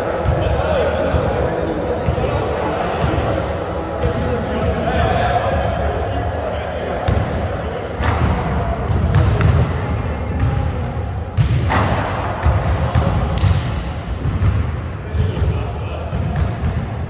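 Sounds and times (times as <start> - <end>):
basketballs bouncing on wood floor: 12.4 - 15.5.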